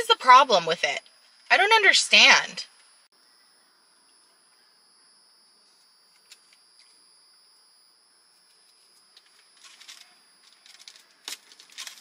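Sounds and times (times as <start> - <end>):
faint steady high tone: 0.0 - 12.0
plastic fork crackling in paper tray: 9.2 - 12.0.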